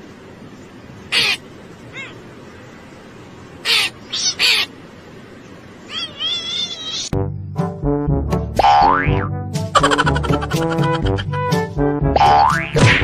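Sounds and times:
crow cawing: 1.1 - 2.2, 3.6 - 4.7
cat calling: 1.1 - 2.4, 3.6 - 4.8, 5.8 - 7.2
music: 7.1 - 13.0.

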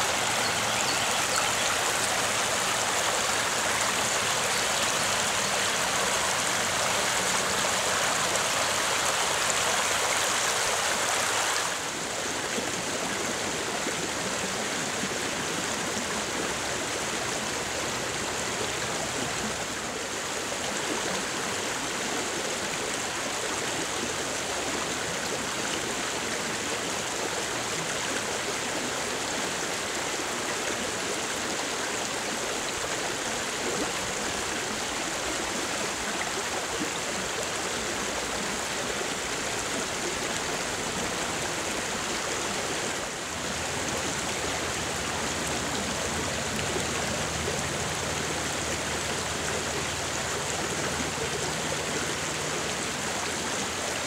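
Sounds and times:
creek water rushing: 0.0 - 54.0.

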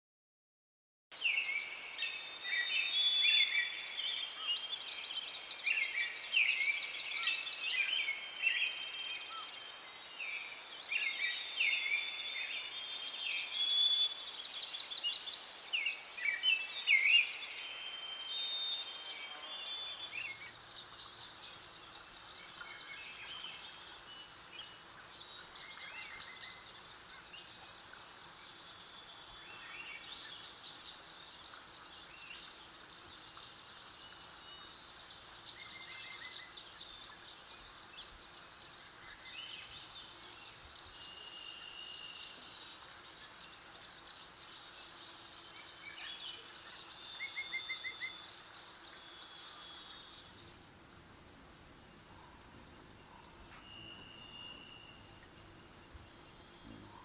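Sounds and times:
birds calling: 18.3 - 57.0
faint low hum: 50.2 - 57.0.

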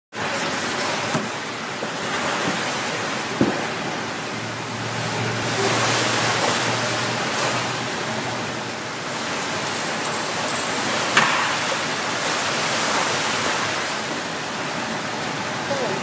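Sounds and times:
water splashing around kayak: 0.1 - 15.4
steady water wash: 0.1 - 16.0
sharp knocks: 3.4 - 3.7, 11.2 - 11.8.

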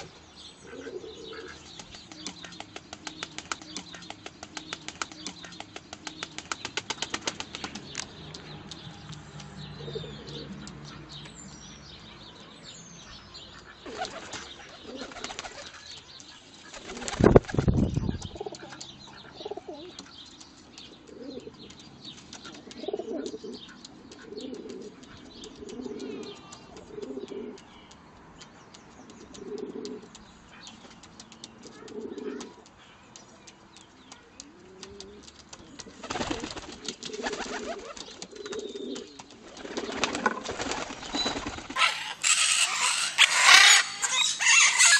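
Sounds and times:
pigeons cooing: 0.0 - 11.3, 13.0 - 15.9, 16.7 - 21.8, 22.4 - 27.7, 29.1 - 30.7, 31.6 - 32.7, 34.4 - 44.9
pigeon wings flapping: 1.7 - 8.8, 13.9 - 15.8, 16.7 - 17.9, 34.7 - 41.8.

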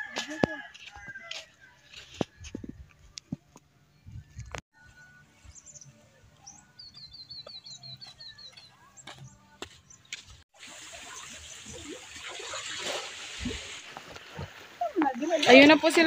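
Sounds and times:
seawater washing over rocks: 10.6 - 16.0.

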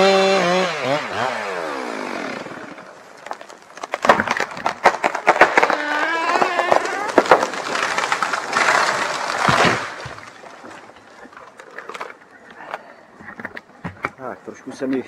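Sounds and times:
tree crashing through branches: 1.2 - 12.1
tree hitting ground: 2.1 - 12.2.

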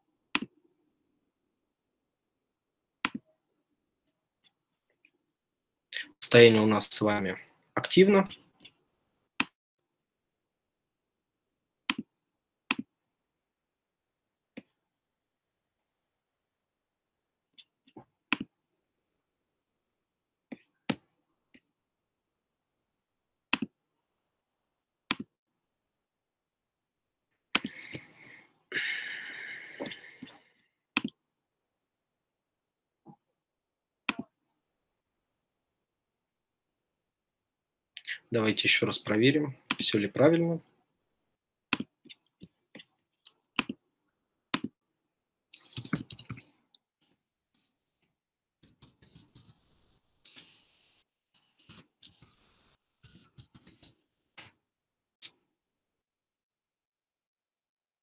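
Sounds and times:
computer mouse clicks: 31.0 - 31.2, 43.2 - 43.8.

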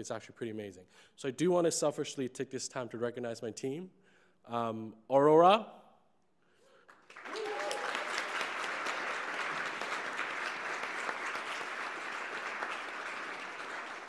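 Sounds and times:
audience applauding: 6.9 - 14.0.

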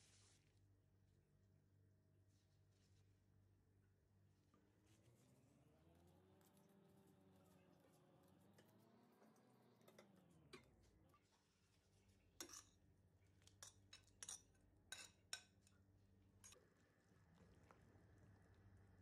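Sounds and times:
dishware clinking on metal pot: 12.4 - 12.8, 13.6 - 15.5.

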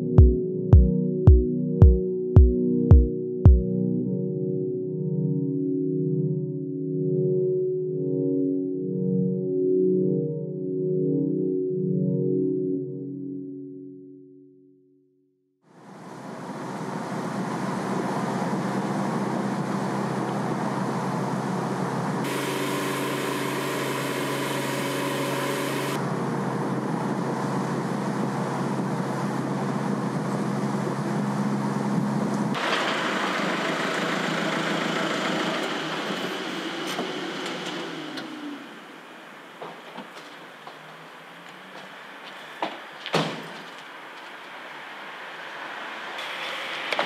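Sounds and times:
car road and engine noise: 15.8 - 47.0.

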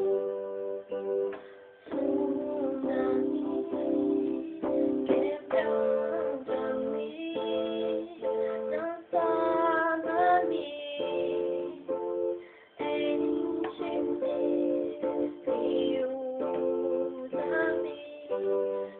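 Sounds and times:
instrumental backing music: 0.0 - 18.9
girl singing: 1.9 - 18.9.

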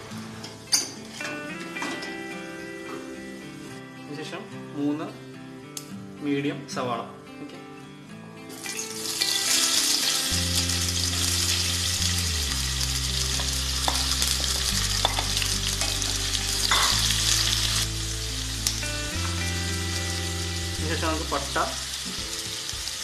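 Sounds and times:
onions sizzling in hot oil: 8.5 - 23.0.

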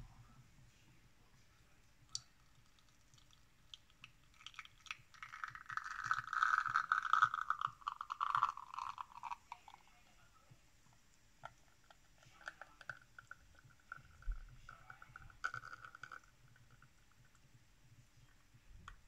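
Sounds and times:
espresso crackling and dripping: 1.2 - 19.0
espresso hissing trickle: 4.5 - 10.0.

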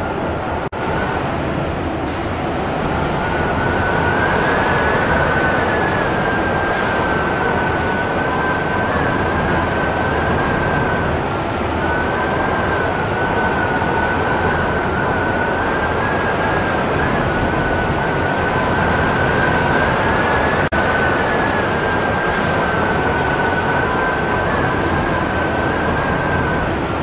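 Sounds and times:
strong wind on microphone: 0.0 - 27.0
thin high whistle: 11.8 - 26.9.

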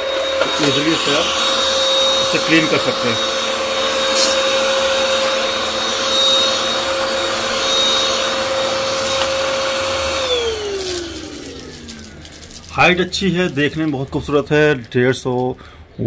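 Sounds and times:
stick vacuum running: 0.0 - 14.9.

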